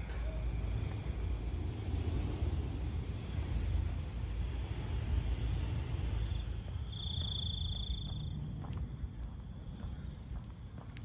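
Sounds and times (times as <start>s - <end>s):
low rumble: 0.0s - 11.0s.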